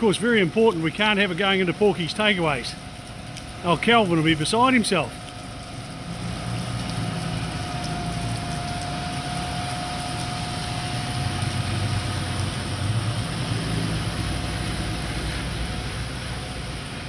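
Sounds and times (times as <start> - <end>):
fire engine pump droning: 0.0 - 17.0
rain hissing: 0.0 - 17.0
tyres on flooded road: 0.0 - 17.0.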